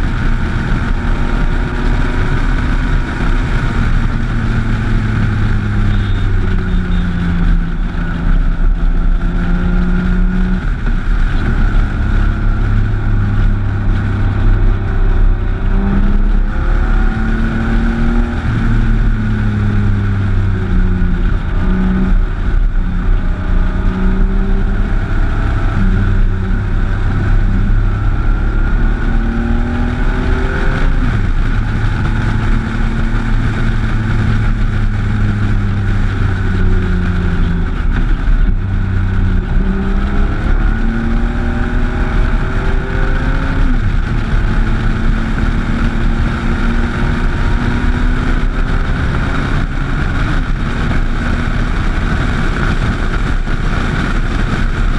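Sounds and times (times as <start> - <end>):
motorcycle engine running: 0.0 - 54.9
wind rush on microphone: 0.0 - 54.9.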